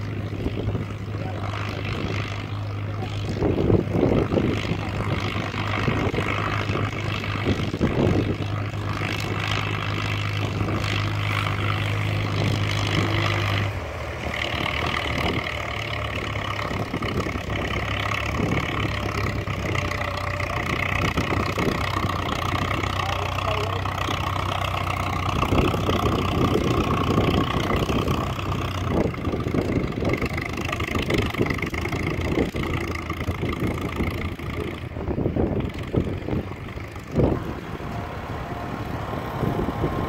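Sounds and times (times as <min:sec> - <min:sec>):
tractor engine droning: 0:00.0 - 0:40.0
gusts of noise: 0:24.8 - 0:40.0.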